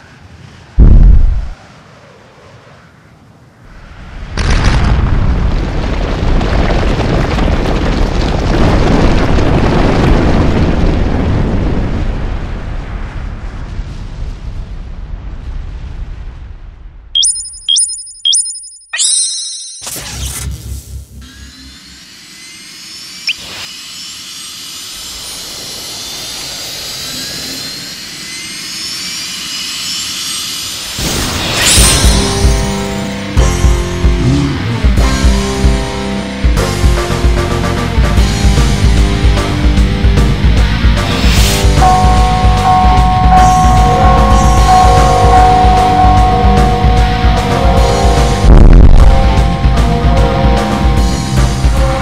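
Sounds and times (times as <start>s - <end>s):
jet thruster rush with whine: 0.0s - 3.1s, 21.7s - 36.5s
deep rumbling: 0.8s - 1.6s
brief high chirp: 17.2s - 20.0s.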